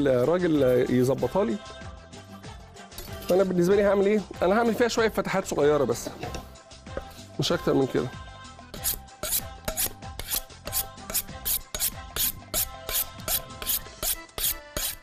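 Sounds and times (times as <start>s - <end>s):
soft background music: 0.0s - 15.0s
knife scraping on honing steel: 8.7s - 15.0s.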